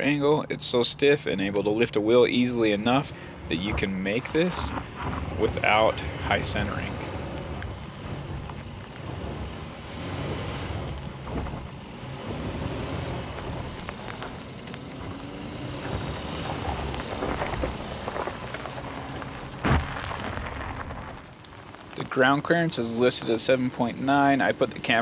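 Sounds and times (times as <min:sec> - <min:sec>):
truck engine at low speed: 0:00.0 - 0:25.0
tyres crackling over stones: 0:01.5 - 0:25.0
wind buffeting microphone: 0:02.6 - 0:20.7.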